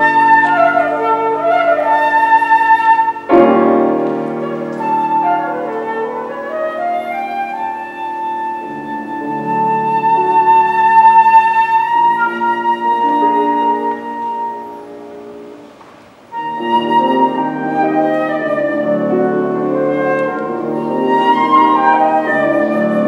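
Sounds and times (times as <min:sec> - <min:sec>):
flute melody: 0:00.0 - 0:23.0
piano chords: 0:00.0 - 0:23.0.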